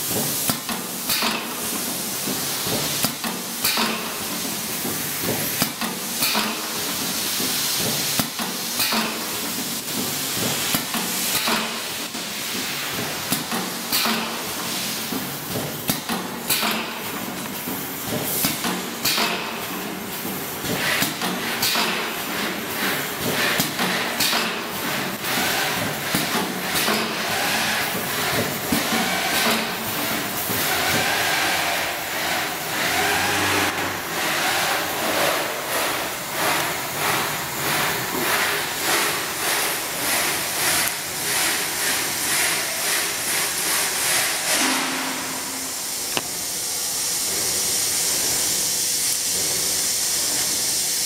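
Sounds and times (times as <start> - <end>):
packing machine jaws clacking: 12.9 - 31.0.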